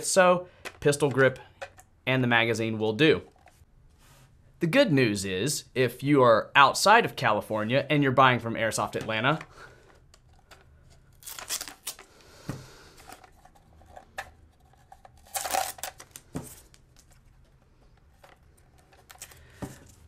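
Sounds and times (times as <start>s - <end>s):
tape being peeled off: 11.1s - 12.1s, 14.6s - 17.2s.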